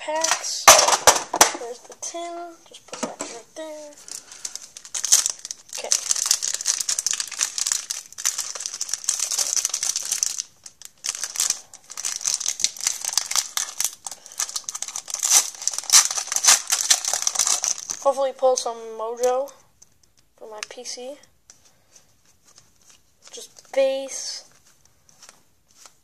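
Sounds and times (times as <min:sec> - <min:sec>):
foil wrapper crinkling and tearing: 0:03.9 - 0:18.1.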